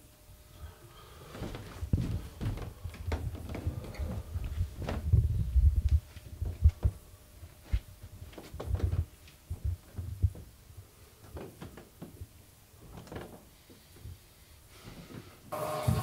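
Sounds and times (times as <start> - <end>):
footsteps on carpeted stairs: 1.3 - 10.6.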